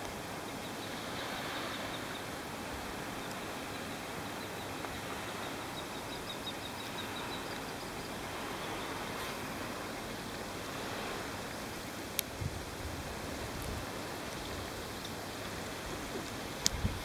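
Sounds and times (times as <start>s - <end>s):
seaside air hiss: 0.7s - 6.0s, 6.6s - 17.0s.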